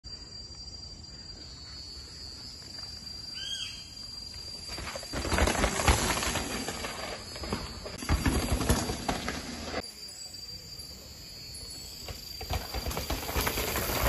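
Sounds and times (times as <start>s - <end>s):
bike tyres crunching on rocks: 4.6s - 9.8s, 12.2s - 14.0s
bike rattling and knocking: 4.8s - 9.8s, 12.0s - 14.0s.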